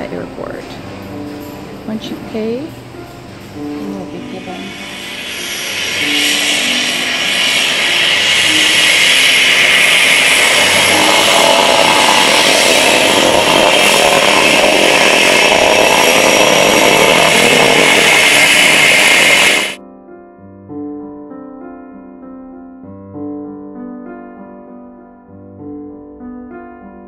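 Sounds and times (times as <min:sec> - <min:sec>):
turboprop plane taxiing: 0:09.8 - 0:19.6.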